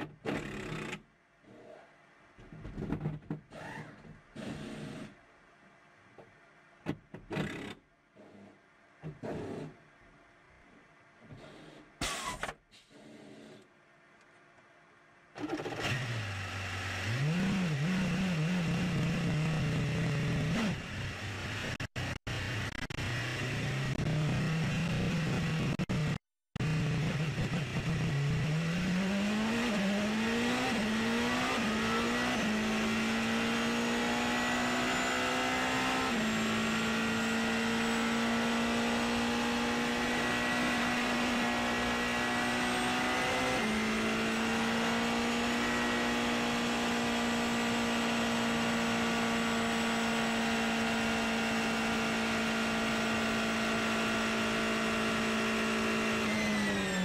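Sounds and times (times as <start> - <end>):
race car engine accelerating: 15.7 - 57.0.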